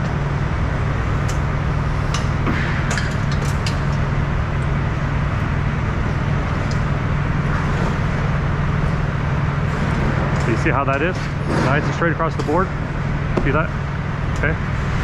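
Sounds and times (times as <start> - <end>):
low mechanical hum: 0.0 - 15.0
hooks clicking and rattling: 2.9 - 4.0.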